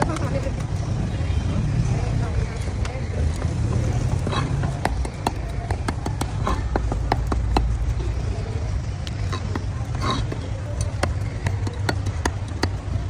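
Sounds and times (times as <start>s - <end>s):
steady low rumble: 0.0s - 13.0s
cleaver chopping on wooden block: 4.3s - 7.9s, 9.4s - 13.0s.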